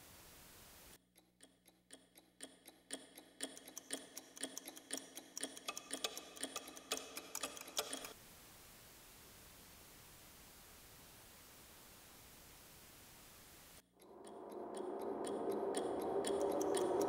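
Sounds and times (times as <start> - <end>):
rapid even ticking: 1.0 - 8.2, 13.8 - 17.0.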